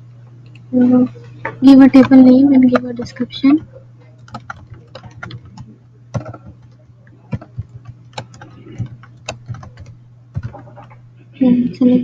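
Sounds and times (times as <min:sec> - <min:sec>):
keyboard keys clicking: 0:02.0 - 0:11.0.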